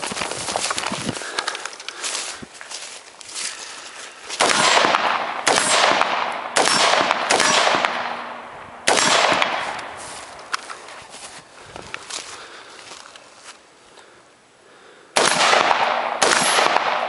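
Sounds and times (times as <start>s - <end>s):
handling and movement: 0.0s - 5.2s, 9.4s - 14.1s
rifle shots: 4.4s - 10.0s, 15.2s - 17.0s.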